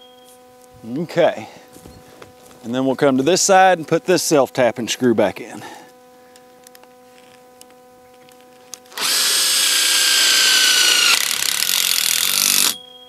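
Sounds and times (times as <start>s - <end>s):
cordless drill whining: 8.9s - 12.8s.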